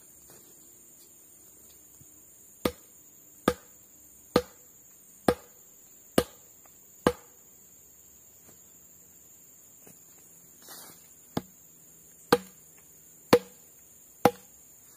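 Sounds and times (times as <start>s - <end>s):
tool chopping into wood: 2.6s - 3.7s, 4.3s - 4.6s, 5.2s - 5.6s, 6.2s - 6.4s, 7.0s - 7.3s, 11.3s - 11.5s, 12.3s - 12.6s, 13.3s - 13.6s, 14.2s - 14.5s.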